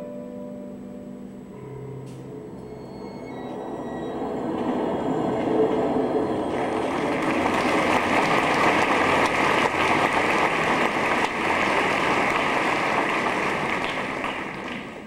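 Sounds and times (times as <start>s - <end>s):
audience applauding: 4.5s - 15.0s.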